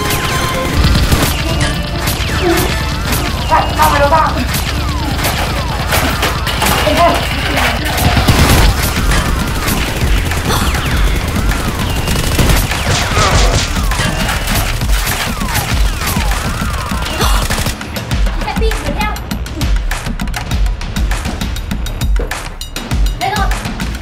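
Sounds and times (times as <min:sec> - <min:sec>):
rapid gunfire sound effects: 0:00.0 - 0:19.1
low pulsing beat: 0:00.0 - 0:24.0.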